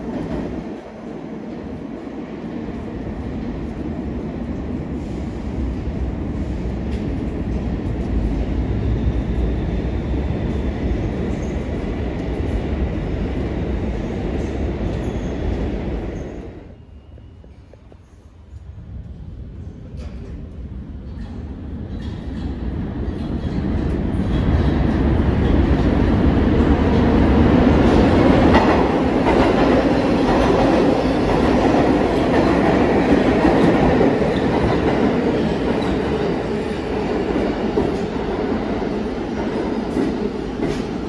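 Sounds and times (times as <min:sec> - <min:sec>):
subway trains rumbling and clacking: 0:00.0 - 0:41.0.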